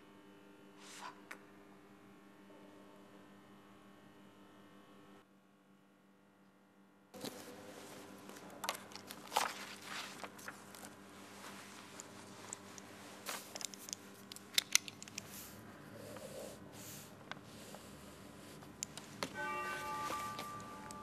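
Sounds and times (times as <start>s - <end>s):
book pages rustling: 7.2s - 15.6s, 17.2s - 21.0s
low steady hum: 7.2s - 21.0s.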